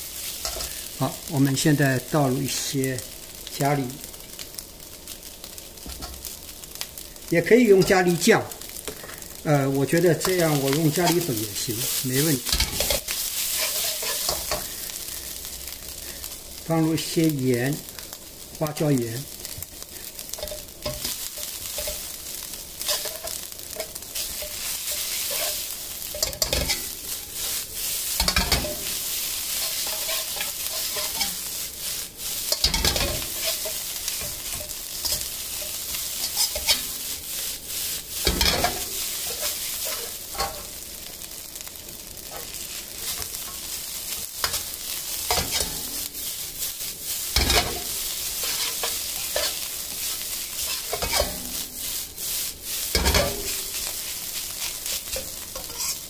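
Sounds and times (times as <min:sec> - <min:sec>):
rice sizzling in a wok: 0:00.0 - 0:56.0
metal spatula scraping a pan: 0:00.1 - 0:00.9, 0:10.1 - 0:14.9, 0:20.1 - 0:40.8, 0:42.2 - 0:56.0.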